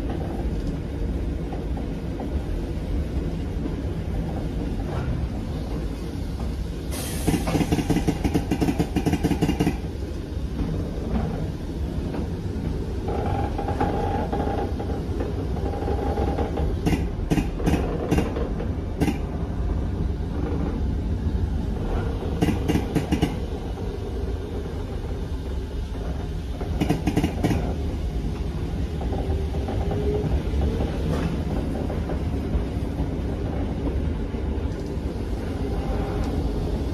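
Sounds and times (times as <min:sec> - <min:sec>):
train carriage rumble: 0:00.0 - 0:36.9
wheel clicks over rail joints: 0:07.2 - 0:09.9, 0:13.4 - 0:19.4, 0:22.3 - 0:23.5, 0:26.0 - 0:27.8.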